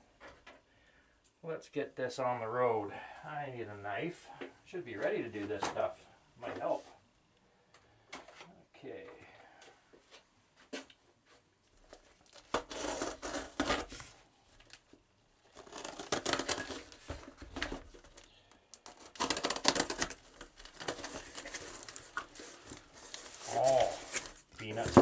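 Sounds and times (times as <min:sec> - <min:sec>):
packing tape tearing: 0:11.9 - 0:25.0.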